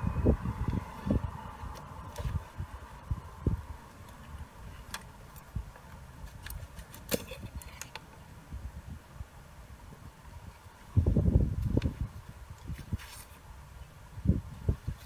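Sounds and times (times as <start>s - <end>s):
low rumble: 0.0s - 4.9s.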